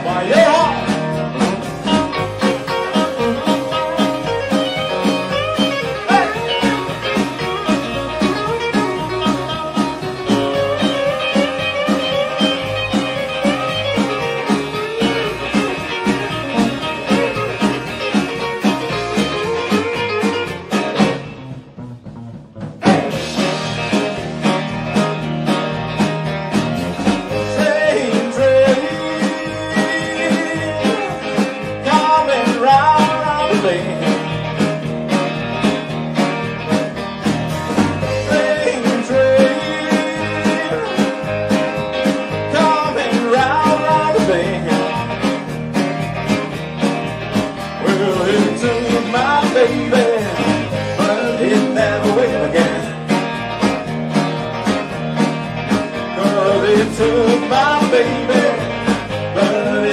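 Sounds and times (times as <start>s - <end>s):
person singing lead vocal: 0.0s - 1.2s, 5.6s - 6.6s, 22.8s - 23.8s, 27.3s - 34.5s, 38.0s - 45.2s, 47.7s - 53.2s, 56.0s - 59.9s
rock band playing live: 0.0s - 59.9s.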